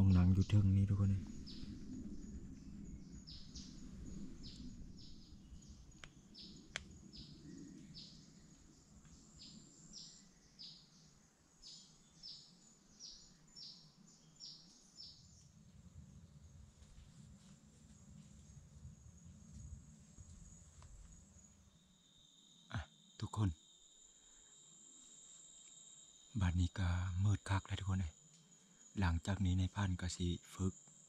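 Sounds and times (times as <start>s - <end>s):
bird chirping: 0.0s - 15.6s.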